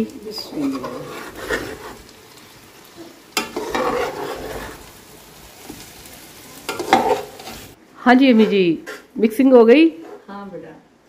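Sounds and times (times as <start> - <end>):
food sizzling: 0.0 - 11.0
metal spatula scraping a pot: 0.4 - 2.1, 3.4 - 4.9, 6.7 - 7.7, 8.4 - 9.2, 9.9 - 10.3.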